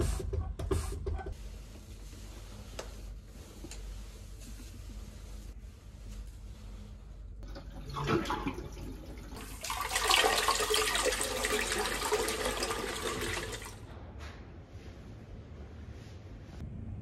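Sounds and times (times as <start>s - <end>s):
toilet flushing: 7.4s - 13.8s.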